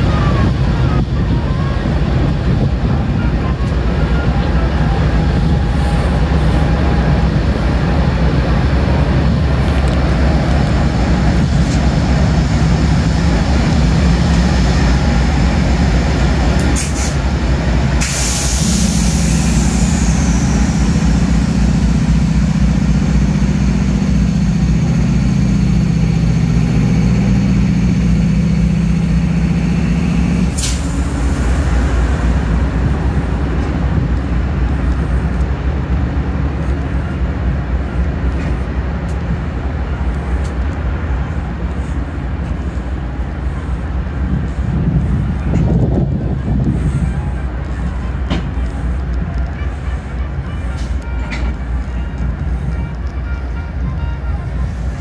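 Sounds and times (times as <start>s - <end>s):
diesel locomotive rumble and hum: 0.0s - 55.0s
air brakes hissing: 16.6s - 22.2s, 30.2s - 32.4s, 41.8s - 52.8s.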